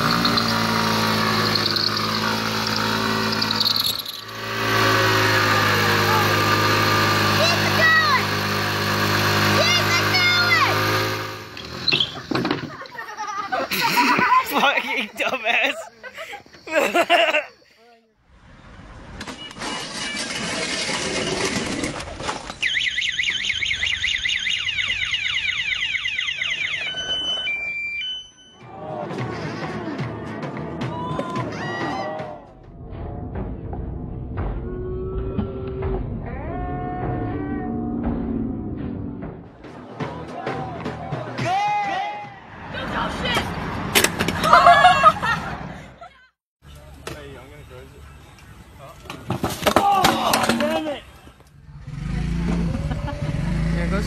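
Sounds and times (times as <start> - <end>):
tyre squeal: 0.0 - 5.8, 11.6 - 12.3
scooter engine revving: 0.0 - 12.7, 51.5 - 54.0
scooter alarm warbling: 22.6 - 28.7.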